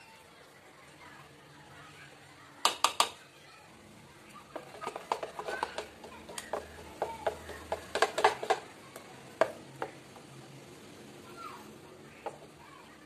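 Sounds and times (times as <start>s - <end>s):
spoon clinking and scraping bowl: 4.6s - 8.6s.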